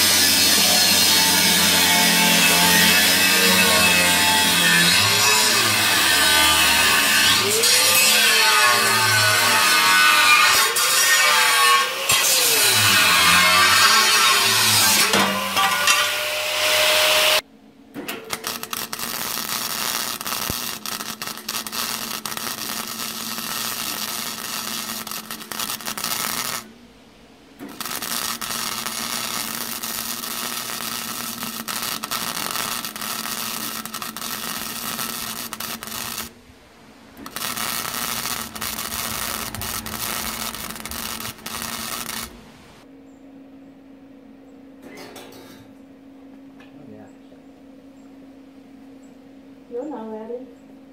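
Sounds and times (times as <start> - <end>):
angle grinder cutting steel: 0.0 - 17.4, 18.3 - 26.7, 27.6 - 36.3, 37.2 - 42.4
arc welding crackling sizzle: 0.0 - 17.4, 18.1 - 26.7, 27.6 - 36.4, 37.1 - 42.9
steady low hum: 17.4 - 50.9.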